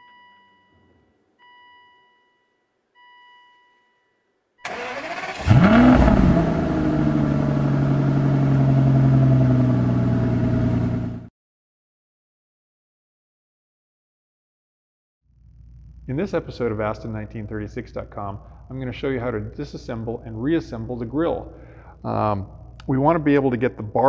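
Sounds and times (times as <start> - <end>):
car engine starting and idling: 4.6 - 11.3.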